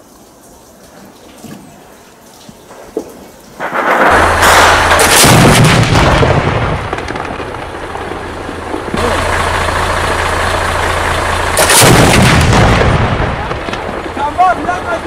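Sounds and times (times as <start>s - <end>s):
cannon firing boom: 3.6s - 14.9s
steady low hum: 4.1s - 14.2s.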